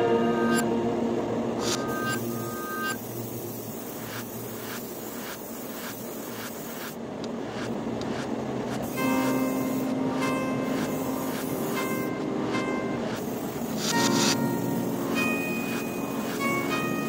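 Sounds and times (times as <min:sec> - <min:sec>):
soft background music: 0:08.9 - 0:17.0.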